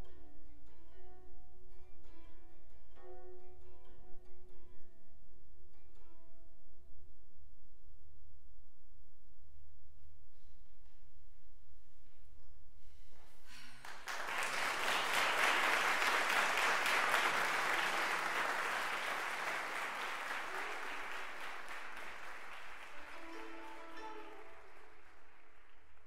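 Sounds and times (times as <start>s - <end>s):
audience applauding: 13.5s - 26.0s.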